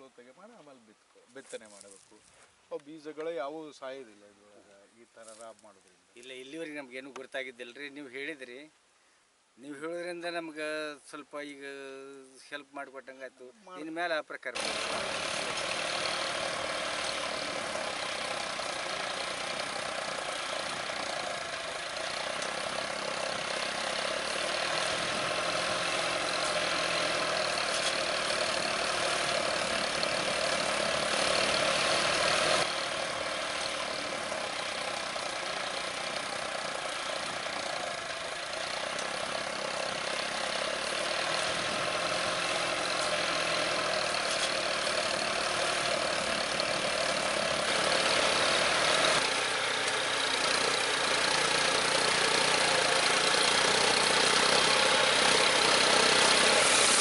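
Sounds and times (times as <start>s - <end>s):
tractor diesel engine running: 14.6s - 57.0s.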